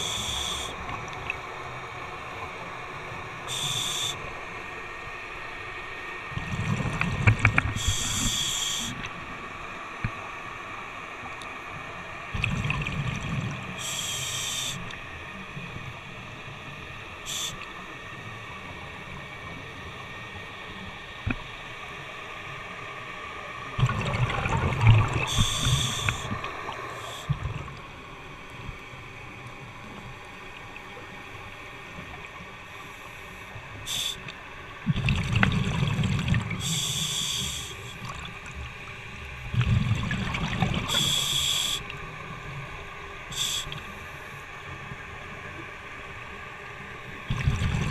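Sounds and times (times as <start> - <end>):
regulator inhale hiss: 0.0 - 1.0, 3.4 - 4.4, 7.6 - 9.2, 13.7 - 15.0, 17.2 - 17.8, 25.2 - 27.4, 32.7 - 34.4, 36.5 - 38.0, 40.9 - 42.0, 43.3 - 44.4
exhaled air bubbling: 12.3 - 15.0, 23.7 - 27.9, 33.9 - 38.6, 39.4 - 42.0, 47.2 - 47.9.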